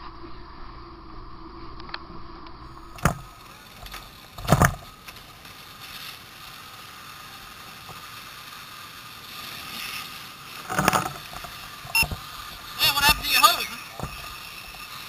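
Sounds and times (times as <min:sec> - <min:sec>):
fire hose spraying water: 0:03.0 - 0:15.0.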